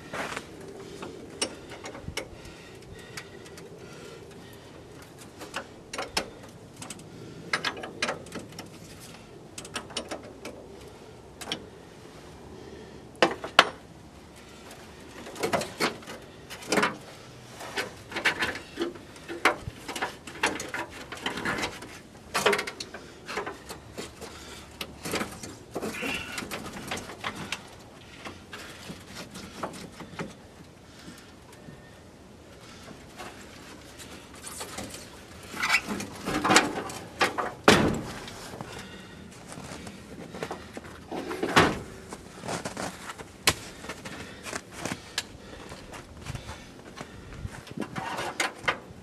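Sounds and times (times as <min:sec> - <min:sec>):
clicks and knocks in engine bay: 0:05.0 - 0:10.6, 0:17.8 - 0:27.7, 0:35.7 - 0:38.9.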